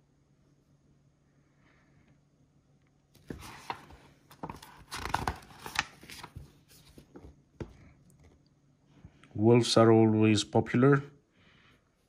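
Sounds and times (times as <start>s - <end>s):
paper pages rustling and snapping: 3.2s - 7.3s.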